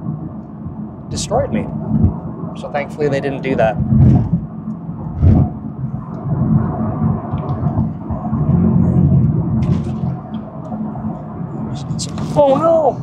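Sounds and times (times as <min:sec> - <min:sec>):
car engine and road noise: 0:00.0 - 0:13.0
sharp thump: 0:05.1 - 0:05.5.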